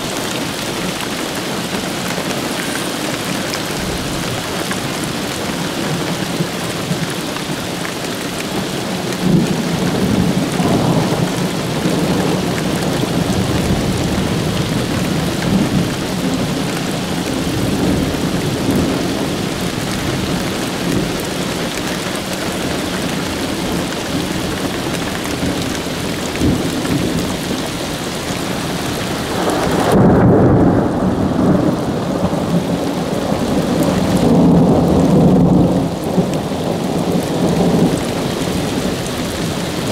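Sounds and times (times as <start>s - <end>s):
steady rain: 0.0s - 39.9s
rumbling thunder: 8.8s - 21.8s, 22.5s - 39.9s.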